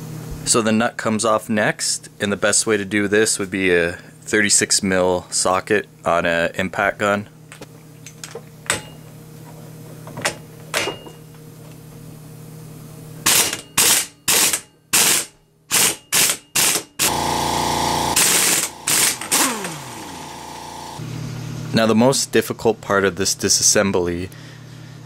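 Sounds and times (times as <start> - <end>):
impact gun hammering: 13.3 - 17.2.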